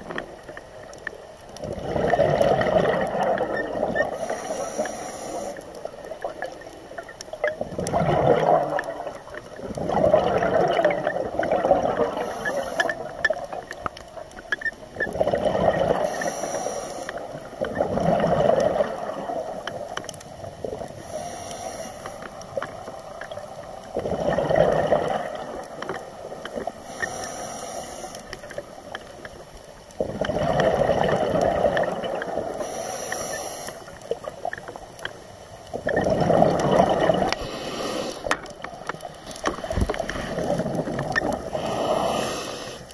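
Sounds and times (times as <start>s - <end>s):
exhaled bubbles gurgling: 0.0s - 42.9s
high regulator hiss: 4.2s - 5.7s, 16.0s - 17.2s, 21.0s - 22.3s, 26.8s - 28.6s, 32.6s - 34.0s, 37.4s - 38.4s, 41.5s - 42.9s.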